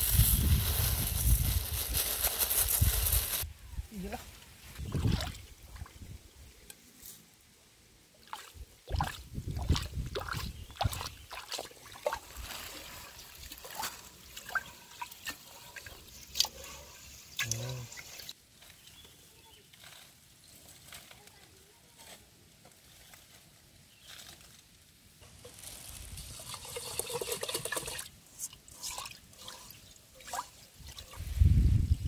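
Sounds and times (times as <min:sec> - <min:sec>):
water pouring off: 0:26.1 - 0:28.1
water splashing in metal pot: 0:26.5 - 0:28.1.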